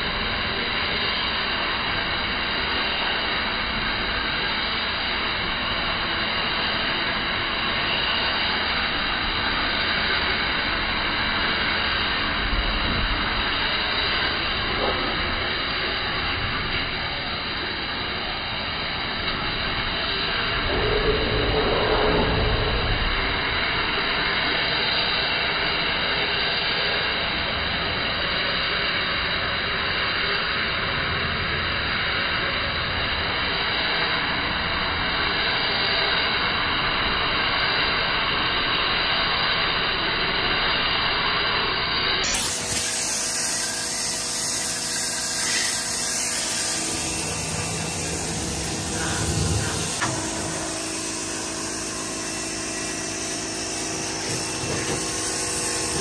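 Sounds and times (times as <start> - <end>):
steady mechanical noise: 0.0 - 56.0
pressure washer spraying concrete: 42.3 - 56.0.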